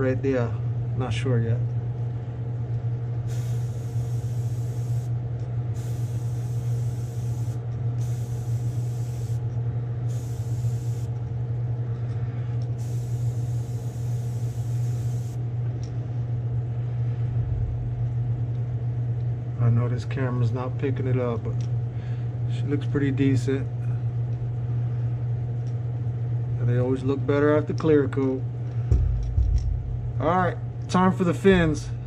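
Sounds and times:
steady low hum: 0.0 - 32.0
airbrush spraying hiss: 3.3 - 5.2, 5.8 - 9.4, 10.1 - 11.1, 12.8 - 15.4.

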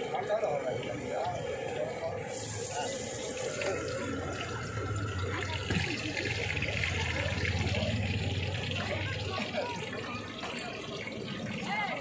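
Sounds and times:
gas burner hissing: 1.4 - 8.5.

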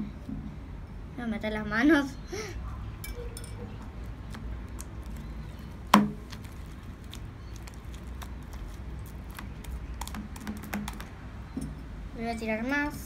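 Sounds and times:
slime squelching and clicking: 3.8 - 11.2
sharp knock: 5.9 - 6.2.

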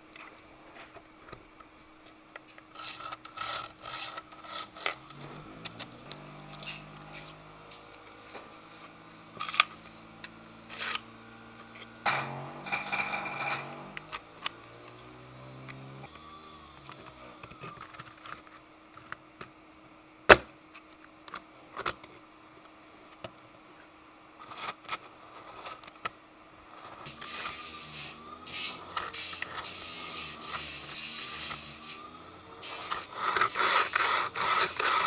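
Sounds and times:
small parts clicking and knocking: 11.7 - 15.0, 32.6 - 35.0
plastic table scraping on rails: 12.1 - 14.2, 32.6 - 35.0.

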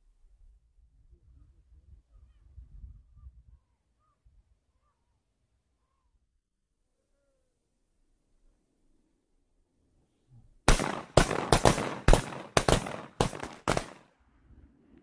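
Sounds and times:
shotgun blasts: 10.7 - 14.0.

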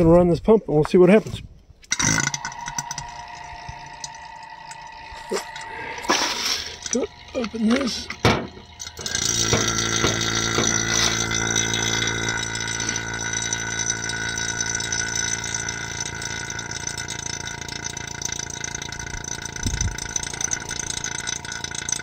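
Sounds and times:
vacuum pump running: 1.8 - 22.0.

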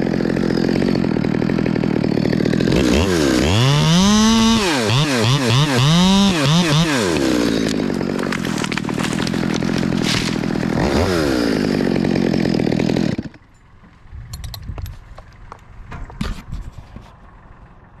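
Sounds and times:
chainsaw running at high speed: 0.0 - 13.6.

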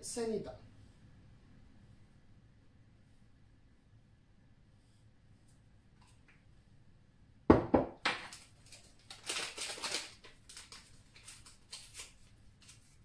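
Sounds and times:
plastic container knocking on counter: 7.5 - 8.3
paper sachet crinkling: 8.3 - 13.0.

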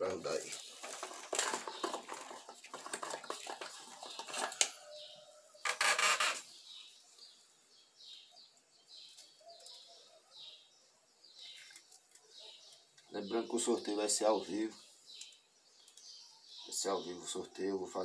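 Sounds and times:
rustling of net twine: 0.0 - 6.6
faint bird chirps: 4.7 - 18.0.

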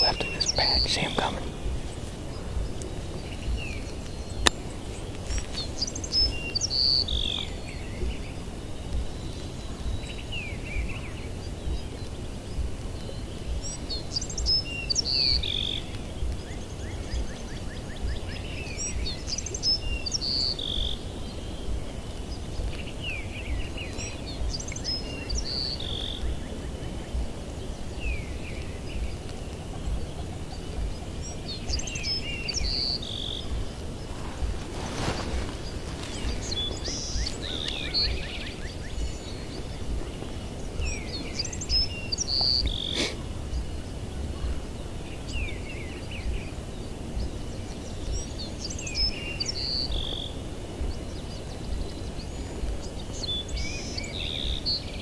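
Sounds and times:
songbird singing: 0.0 - 55.0
low rumble: 26.0 - 49.2.

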